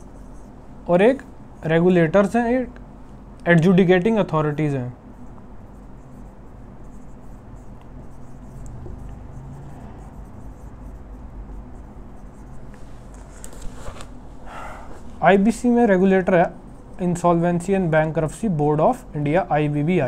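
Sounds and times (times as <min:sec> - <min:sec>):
marker scraping on whiteboard: 0:00.0 - 0:00.6, 0:05.2 - 0:14.1
low room hum: 0:00.0 - 0:20.0.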